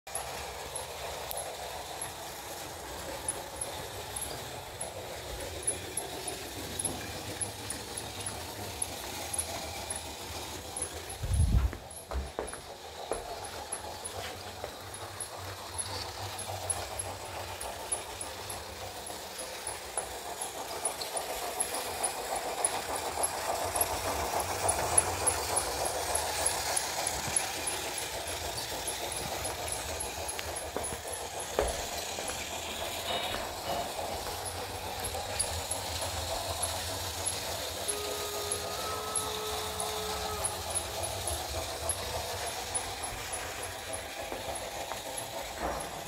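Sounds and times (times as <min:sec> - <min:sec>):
steam locomotive sound from speaker: 0:00.1 - 0:46.0
toy train wheels rolling on track: 0:00.1 - 0:46.0.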